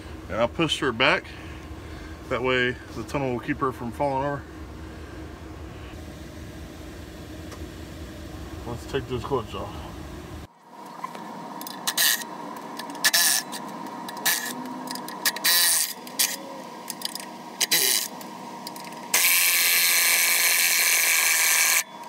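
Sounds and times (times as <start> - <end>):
electric ratchet spinning bolts: 11.6 - 21.9.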